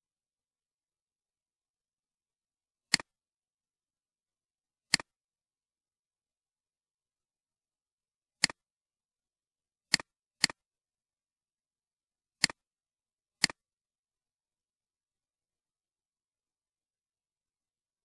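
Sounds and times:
computer mouse clicks: 2.9 - 3.2, 4.9 - 5.1, 8.4 - 8.6, 9.9 - 10.6, 12.4 - 12.6, 13.4 - 13.7.

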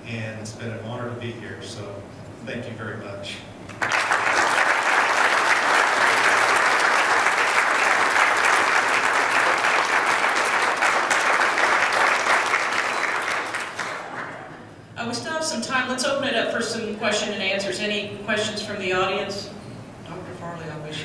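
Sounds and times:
audience applauding: 3.7 - 14.6.

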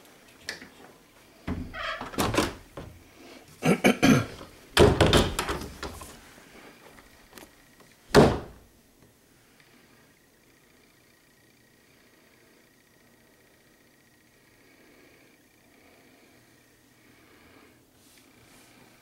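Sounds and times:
wooden cabinet doors and drawers knocking: 1.5 - 3.0, 4.8 - 6.1, 8.1 - 8.6.

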